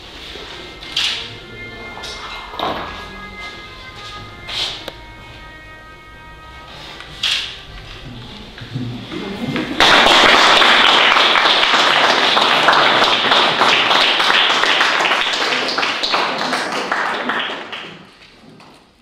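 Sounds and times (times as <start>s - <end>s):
audience applauding: 8.8s - 18.4s.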